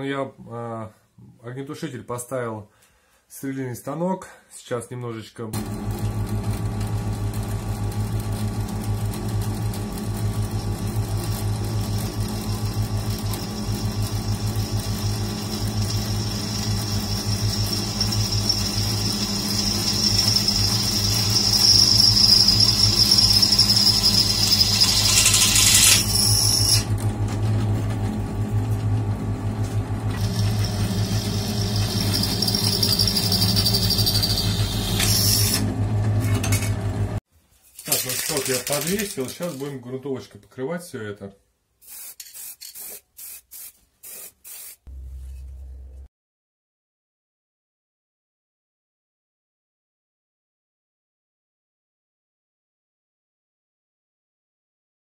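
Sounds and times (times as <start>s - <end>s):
drill press motor hum: 5.6s - 37.2s
drill bit squealing on steel: 15.0s - 26.9s, 30.2s - 35.6s.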